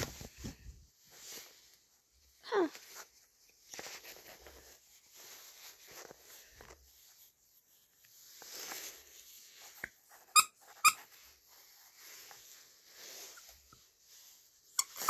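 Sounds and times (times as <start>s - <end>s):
fabric rustling: 0.0s - 10.1s, 11.1s - 14.7s
plush toy squeaker squeaking: 10.2s - 11.1s, 14.7s - 15.0s.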